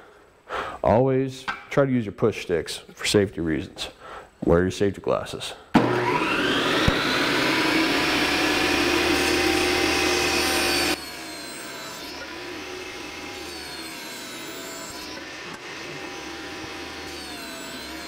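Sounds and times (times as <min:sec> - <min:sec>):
table saw motor whine: 0:05.8 - 0:18.0.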